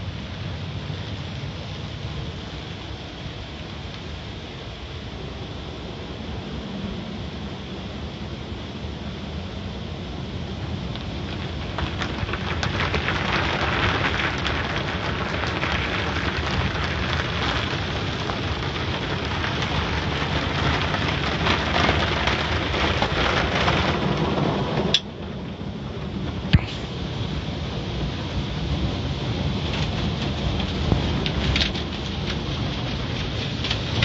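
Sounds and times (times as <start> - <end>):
car wash spray drumming on car: 10.6 - 34.0
low rumble: 22.2 - 34.0.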